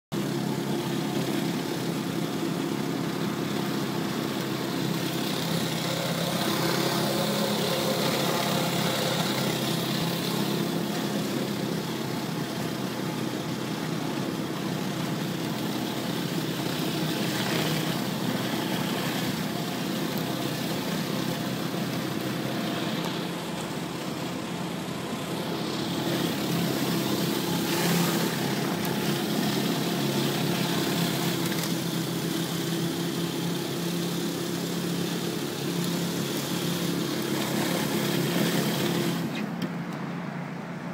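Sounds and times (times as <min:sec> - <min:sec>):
pressure washer engine running: 0:00.1 - 0:39.6
water spray hissing on concrete: 0:25.2 - 0:39.4.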